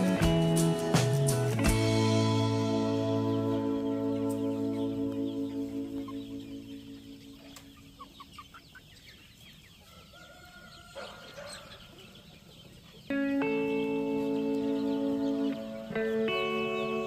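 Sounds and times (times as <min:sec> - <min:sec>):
background music: 0:00.0 - 0:07.7, 0:13.1 - 0:17.0
chickens clucking: 0:00.0 - 0:17.0.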